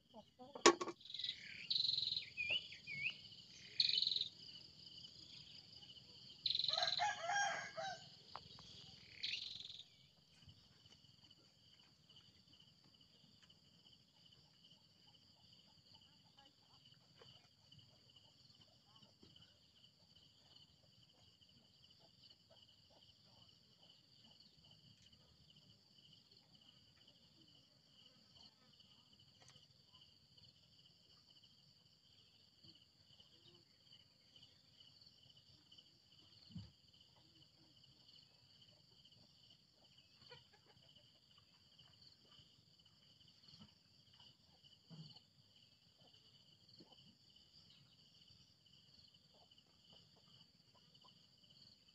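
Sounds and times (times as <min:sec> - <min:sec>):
insects chirring: 0:00.6 - 0:16.1.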